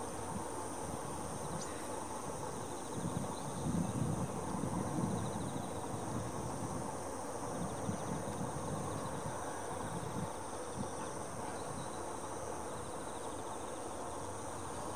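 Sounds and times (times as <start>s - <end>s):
crickets chirping chorus: 0.0s - 14.9s.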